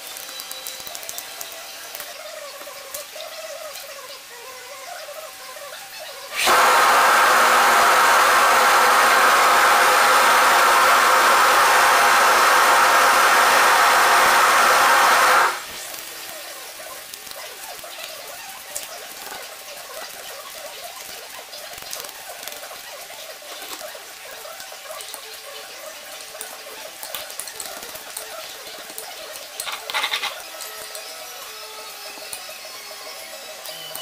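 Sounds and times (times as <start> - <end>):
small irregular clicks: 0.0 - 3.8
loud rushing noise: 6.4 - 15.6.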